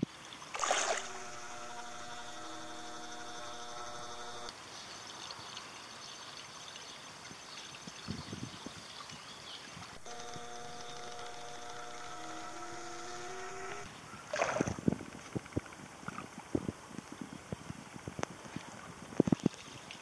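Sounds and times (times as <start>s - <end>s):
short water splash: 0.5s - 1.3s, 14.3s - 14.9s
steady multi-tone hum: 0.6s - 4.5s, 10.0s - 14.2s.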